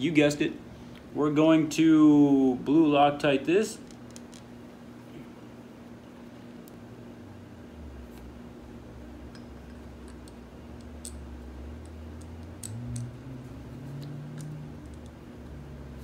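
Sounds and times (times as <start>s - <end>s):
low hum: 4.6s - 16.0s
small metal parts clicking: 9.3s - 13.2s, 13.8s - 15.2s.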